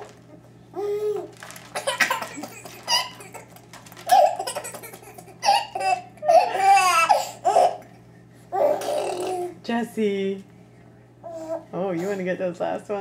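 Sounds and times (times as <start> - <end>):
baby laughing: 0.8 - 9.6.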